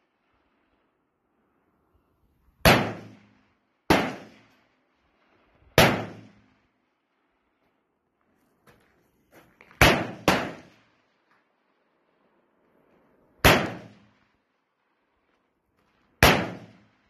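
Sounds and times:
faint distant gunshots: 0:02.6 - 0:04.6, 0:05.8 - 0:06.5, 0:09.8 - 0:10.9, 0:13.4 - 0:14.2, 0:16.2 - 0:17.0
rifle single shots: 0:02.6 - 0:04.6, 0:05.8 - 0:06.5, 0:09.8 - 0:10.9, 0:13.4 - 0:14.2, 0:16.2 - 0:17.0.

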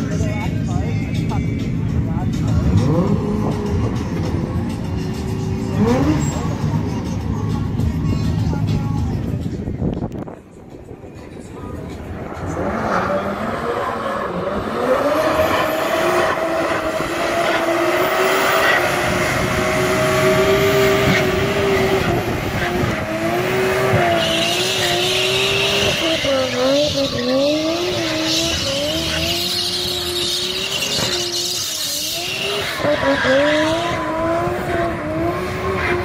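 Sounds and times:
tyres screeching: 0:02.3 - 0:08.8, 0:12.4 - 0:36.0
car engine revving hard: 0:02.4 - 0:07.0, 0:12.2 - 0:36.0.

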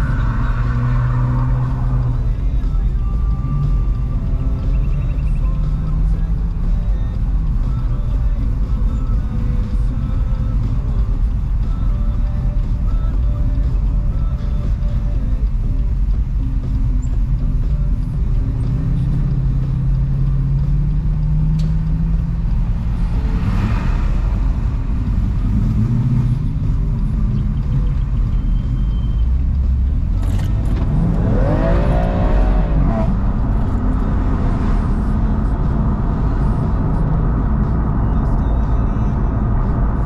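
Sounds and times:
car engine: 0:00.0 - 0:40.0
road noise: 0:00.0 - 0:40.0.

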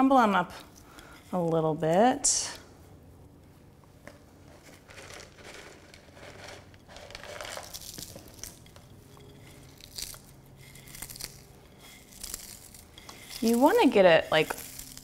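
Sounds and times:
fried onions crackling and crunching: 0:07.0 - 0:15.0.

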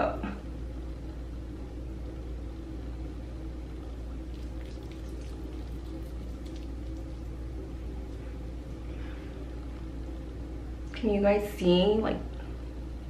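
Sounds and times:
low room hum: 0:00.0 - 0:13.0
wet squishing of fingertips: 0:04.3 - 0:07.4.

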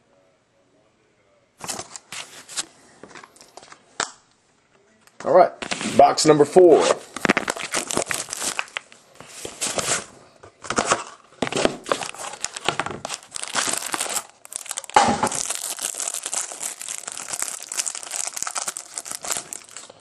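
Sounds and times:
plastic wrapper crinkling: 0:07.1 - 0:10.1, 0:10.7 - 0:20.0.

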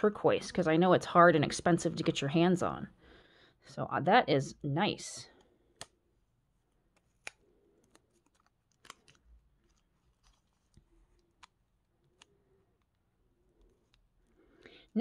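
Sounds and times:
plastic wrapping crinkling: 0:07.0 - 0:12.9.

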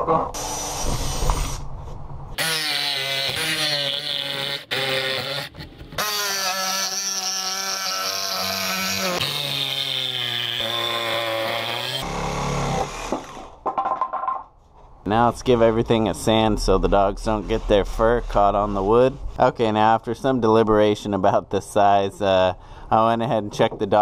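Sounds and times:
jigsaw cutting plywood: 0:02.4 - 0:13.4.

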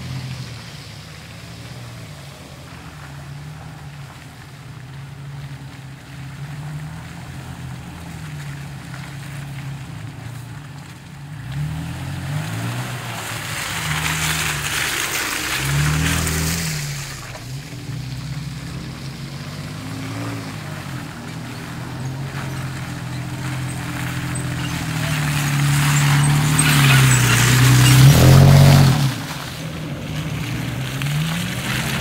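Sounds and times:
truck engine revving under load: 0:11.4 - 0:32.0.

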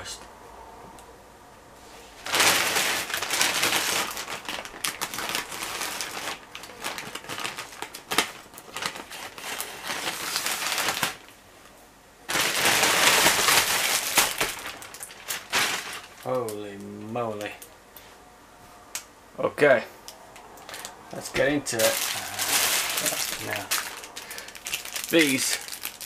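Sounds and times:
plastic bag crinkling: 0:02.2 - 0:11.4, 0:12.3 - 0:17.8, 0:20.6 - 0:26.0.

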